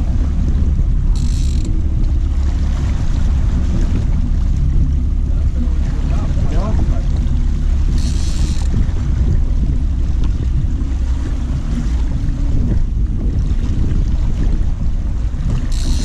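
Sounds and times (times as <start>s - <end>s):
boat motor running: 0.0s - 16.0s
water noise: 0.0s - 16.0s
wind: 0.0s - 16.0s
high-pitched buzz: 0.9s - 3.6s, 7.4s - 8.8s, 15.7s - 16.0s.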